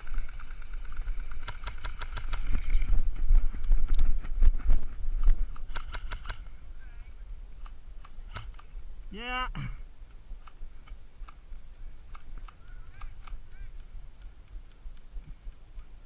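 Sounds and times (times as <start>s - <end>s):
airsoft guns firing bursts: 0.0s - 2.9s, 5.5s - 6.5s.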